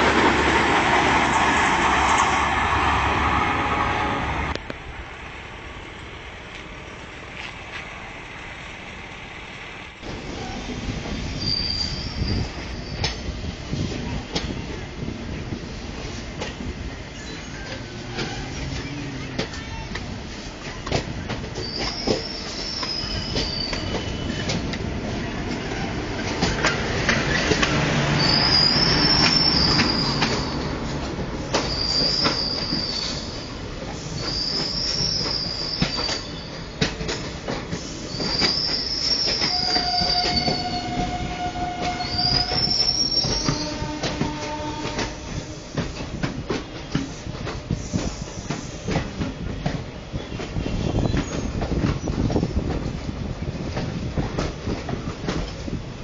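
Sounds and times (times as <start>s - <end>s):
train wheels rumbling and clattering: 0.0s - 56.0s
high wheel squeal: 10.4s - 13.2s, 21.6s - 24.6s, 28.1s - 30.7s, 31.5s - 36.6s, 37.9s - 45.0s.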